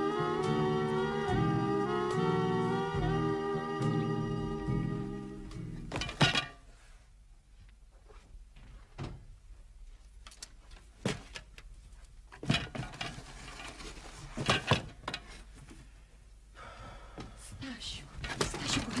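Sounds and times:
knocks thumps and rustles: 5.9 - 6.6, 12.3 - 15.8.

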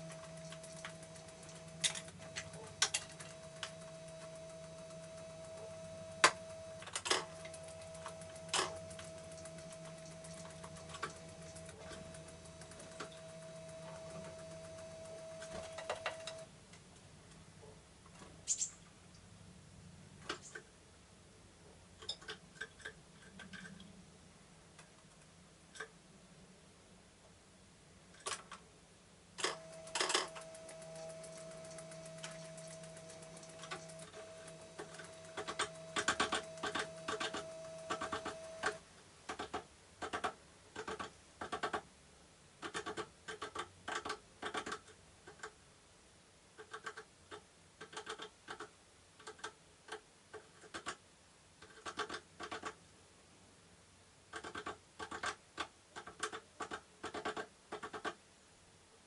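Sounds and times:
bird pecking with bill: 0.0 - 16.4, 29.4 - 41.8, 42.6 - 45.5, 51.6 - 52.8, 54.3 - 58.2
steady mid-pitched tone: 0.0 - 16.5, 29.4 - 38.8
low hum: 0.0 - 16.6, 29.4 - 38.8.

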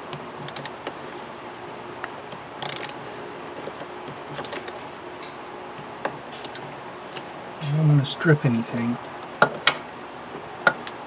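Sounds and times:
ratchet wrench clicking: 0.4 - 0.7, 2.6 - 3.0, 4.4 - 4.8, 6.4 - 6.7.

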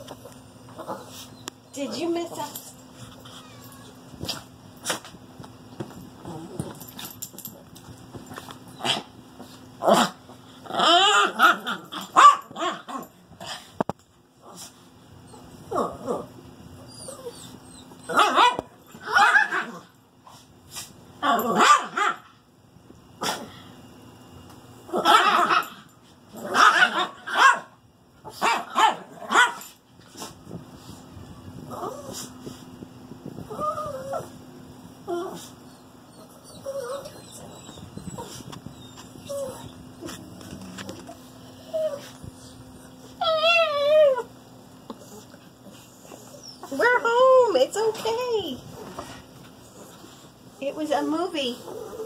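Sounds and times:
small dogs growling and barking: 0.2 - 5.2, 6.2 - 7.6, 8.2 - 13.8, 14.4 - 22.4, 23.2 - 23.7, 24.9 - 30.6, 31.6 - 32.6, 33.4 - 34.4, 35.0 - 47.0, 51.6 - 52.0
small dogs whining calls: 16.8 - 19.8, 33.5 - 34.4, 35.1 - 40.2, 41.6 - 44.3.

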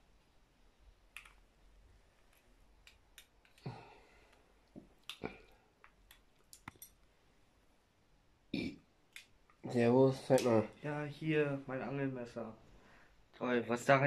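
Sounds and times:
small hard objects clicking: 5.0 - 7.0.

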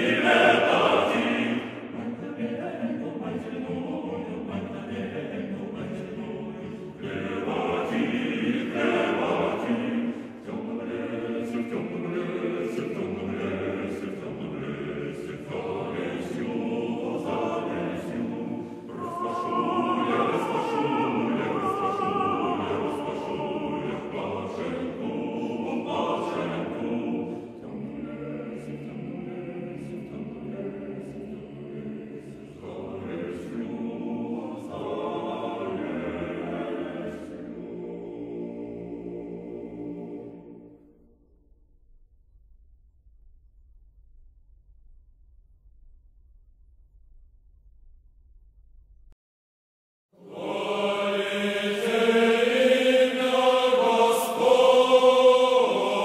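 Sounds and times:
choir singing sustained chords: 0.0 - 41.4, 50.2 - 56.0.

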